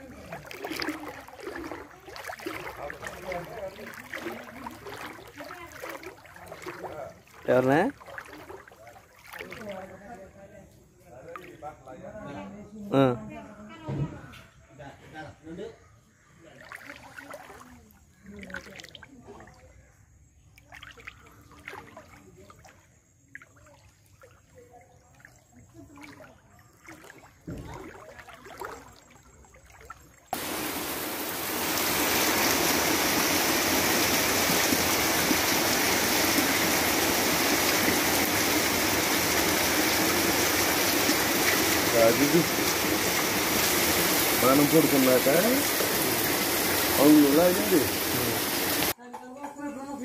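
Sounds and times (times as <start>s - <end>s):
loud rush of water: 0.0s - 8.6s, 30.3s - 49.0s.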